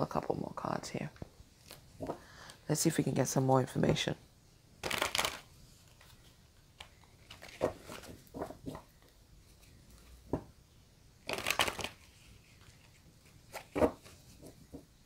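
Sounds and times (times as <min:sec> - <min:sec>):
cards riffle shuffling: 0:04.8 - 0:06.2, 0:11.2 - 0:14.6
cards rustling and slapping: 0:04.8 - 0:10.3, 0:11.2 - 0:14.9.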